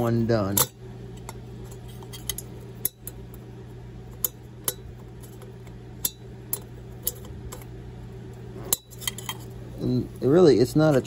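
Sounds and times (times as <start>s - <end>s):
space heater hum: 0.0s - 11.0s
metal pick clicking and scraping: 0.5s - 3.4s, 4.1s - 7.7s, 8.6s - 9.6s.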